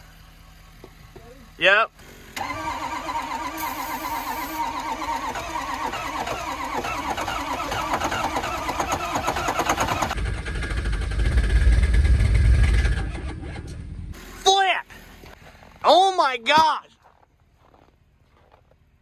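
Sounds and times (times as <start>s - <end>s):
deep exhaust rumble: 0.0s - 2.4s, 10.1s - 15.8s
diesel engine cranking on starter: 2.0s - 14.4s
hiss of starting fluid spray: 3.2s - 4.8s.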